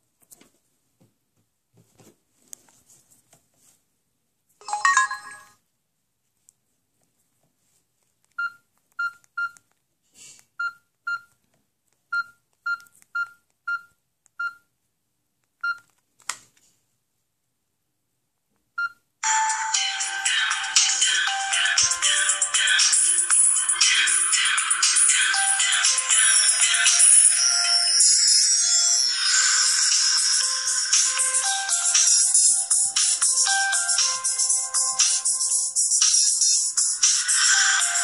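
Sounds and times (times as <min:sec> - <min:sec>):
phone keypad beeps: 0:08.4 - 0:09.6, 0:12.1 - 0:14.7, 0:15.6 - 0:15.9.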